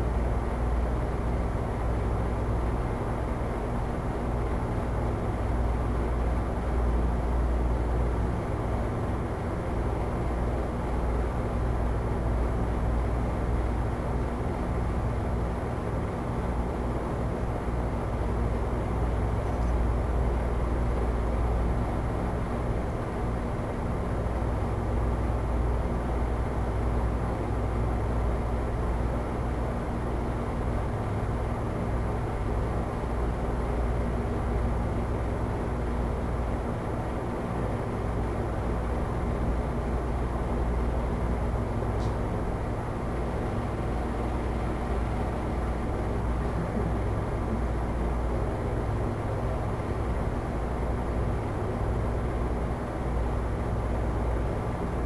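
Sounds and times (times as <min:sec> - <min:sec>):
faint hum: 0:00.0 - 0:55.0
low room rumble: 0:00.0 - 0:55.0
faint low hum: 0:41.7 - 0:50.6.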